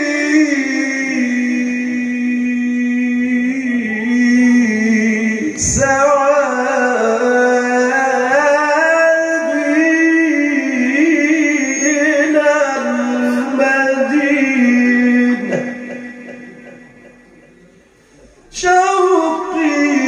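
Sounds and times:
man singing into a microphone: 0:00.0 - 0:17.4, 0:18.3 - 0:20.0.

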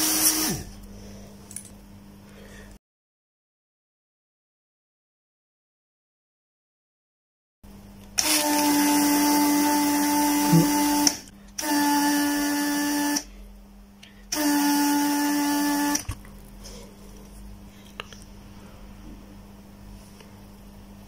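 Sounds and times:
desoldering pump hum and hiss: 0:00.0 - 0:02.8, 0:07.7 - 0:21.0.

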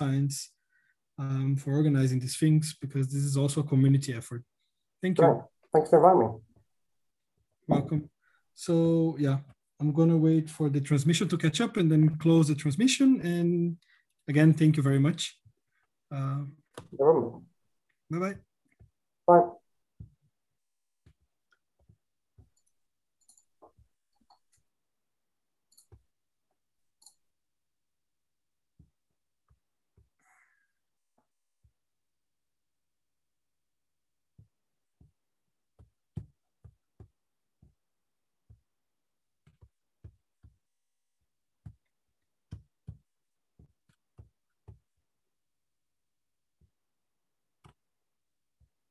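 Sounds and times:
faint clicks and taps: 0:21.0 - 0:24.7, 0:25.7 - 0:27.3, 0:34.4 - 0:37.8, 0:39.4 - 0:45.1, 0:47.6 - 0:47.9
computer mouse clicks: 0:22.6 - 0:23.5, 0:25.7 - 0:26.0.

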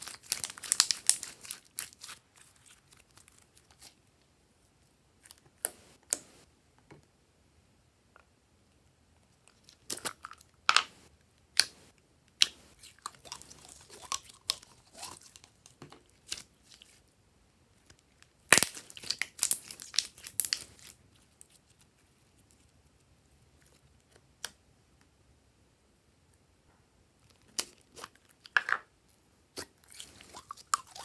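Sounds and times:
slime crackling and popping: 0:00.0 - 0:03.9, 0:18.4 - 0:20.9.

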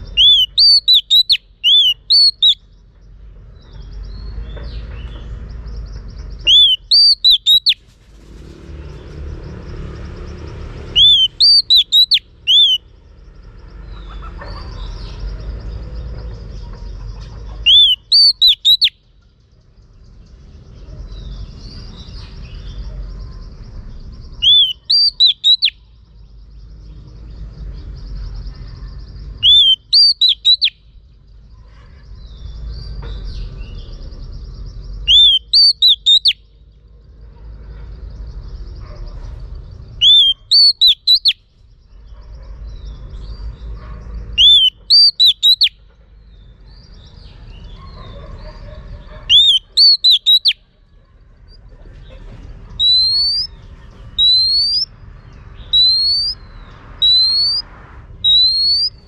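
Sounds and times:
bird whistling song: 0:00.0 - 0:02.7, 0:03.6 - 0:07.8, 0:10.9 - 0:12.9, 0:17.6 - 0:19.1, 0:24.3 - 0:26.0, 0:29.3 - 0:31.0, 0:34.9 - 0:36.5, 0:39.9 - 0:41.5, 0:44.3 - 0:45.9, 0:49.2 - 0:50.6, 0:52.8 - 0:59.0.

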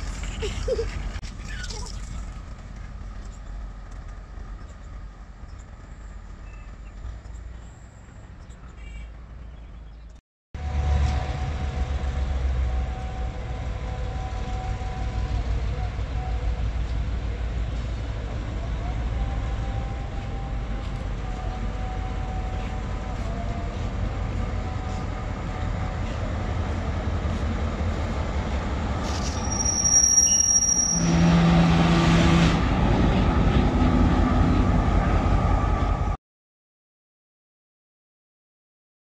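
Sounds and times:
diesel locomotive rumbling: 0:00.0 - 0:36.2
wheels squealing on rail: 0:28.4 - 0:32.5.

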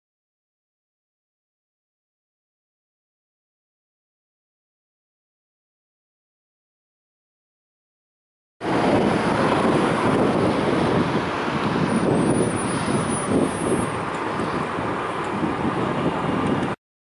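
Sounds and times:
road traffic roar: 0:08.6 - 0:16.8.

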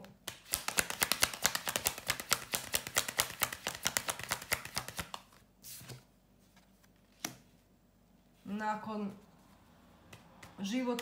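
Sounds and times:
cards being shuffled: 0:00.2 - 0:07.5.

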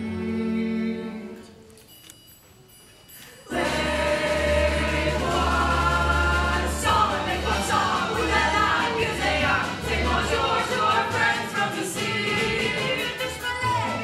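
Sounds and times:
ensemble singing with accompaniment: 0:03.4 - 0:14.0.

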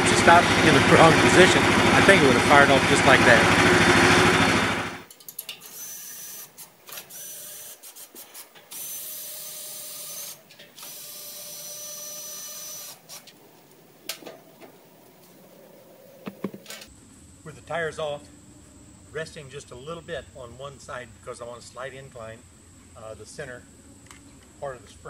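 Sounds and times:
engine running: 0:00.0 - 0:16.9
power drill whirring: 0:03.4 - 0:15.4.

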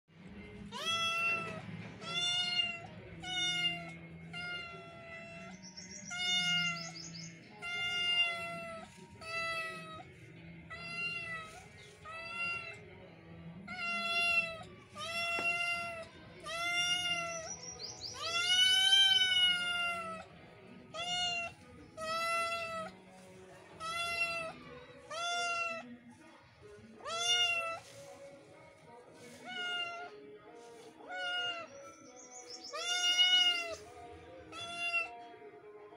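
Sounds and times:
kitten meowing: 0:00.8 - 0:05.4, 0:06.1 - 0:06.8, 0:07.6 - 0:10.0, 0:13.7 - 0:17.5, 0:18.2 - 0:20.3, 0:20.9 - 0:22.9, 0:23.8 - 0:25.8, 0:27.0 - 0:27.8, 0:32.7 - 0:33.8, 0:34.5 - 0:35.1.

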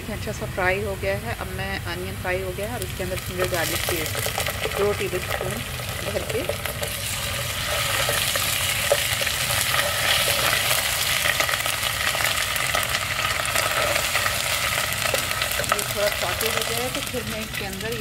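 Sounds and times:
onions sizzling in oil: 0:00.1 - 0:18.0
spatula scraping a pot: 0:06.4 - 0:12.8.

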